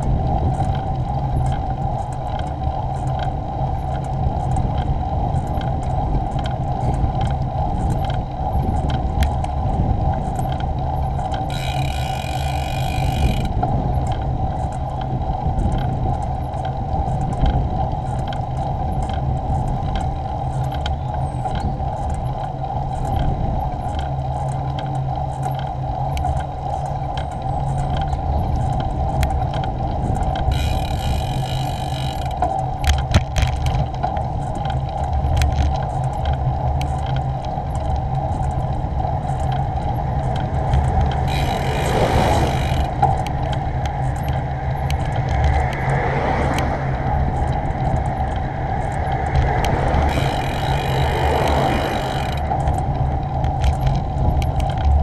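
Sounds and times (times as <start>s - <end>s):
bicycle clicks and rattles: 0.0s - 55.0s
tyres and wind rumble: 0.0s - 55.0s
cars passing: 40.4s - 53.2s.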